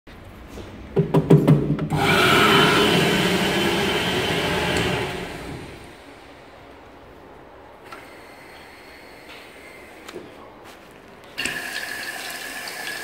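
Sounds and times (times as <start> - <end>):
hand dryer blowing air: 1.9 - 6.0.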